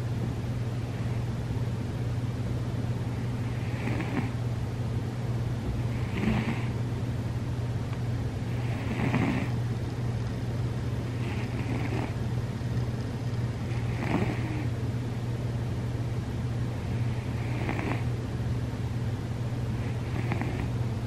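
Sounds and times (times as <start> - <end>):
steady low hum: 0.0 - 21.0
cat snoring: 3.3 - 4.4, 5.9 - 6.8, 8.5 - 9.6, 11.1 - 12.2, 13.7 - 14.7, 16.8 - 18.1, 19.8 - 20.7.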